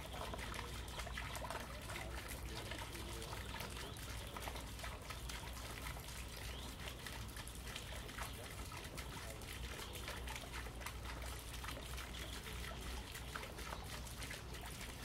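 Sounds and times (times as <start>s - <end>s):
fountain trickling into pond: 0.0s - 15.0s.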